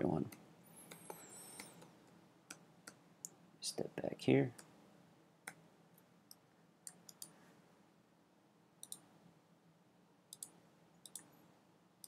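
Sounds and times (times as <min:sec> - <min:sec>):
computer mouse clicks: 0:00.3 - 0:01.9, 0:06.3 - 0:07.4, 0:08.8 - 0:09.1, 0:10.3 - 0:11.3.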